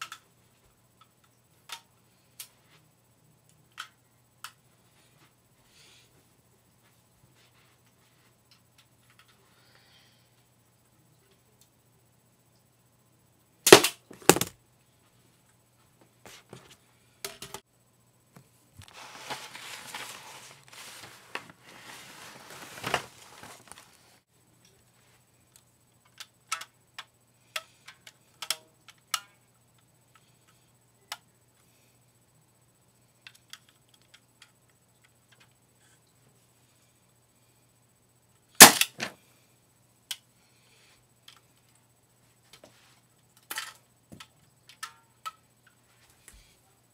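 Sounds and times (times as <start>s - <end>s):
crossbow firing crack: 13.7s - 14.5s, 38.6s - 39.1s
rustling handling: 18.8s - 24.2s.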